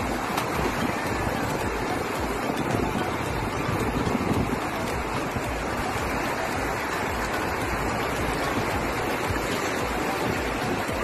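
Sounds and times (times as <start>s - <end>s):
surf breaking on beach: 0.0s - 11.0s.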